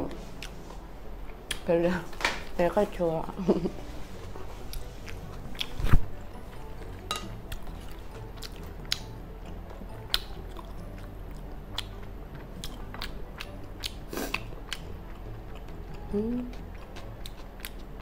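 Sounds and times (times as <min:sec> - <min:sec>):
mouth chewing: 0:04.6 - 0:05.9, 0:06.8 - 0:18.0.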